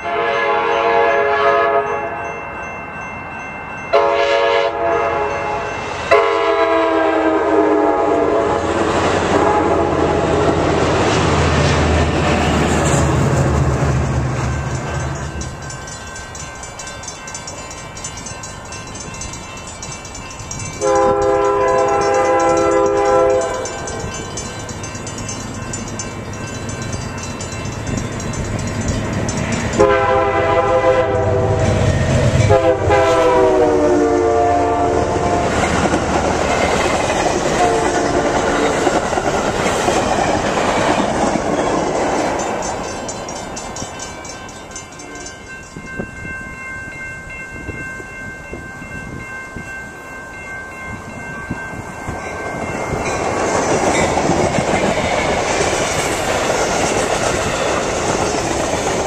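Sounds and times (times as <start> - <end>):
train horn blasts: 0.0 - 2.3, 3.9 - 10.7, 20.8 - 24.1, 29.8 - 35.6, 37.5 - 38.6
train cars rumbling on rails: 3.8 - 59.0.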